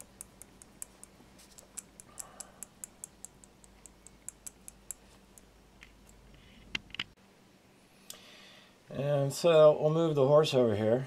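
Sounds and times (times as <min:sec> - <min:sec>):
glass rod clicking against beaker: 0:00.0 - 0:06.2.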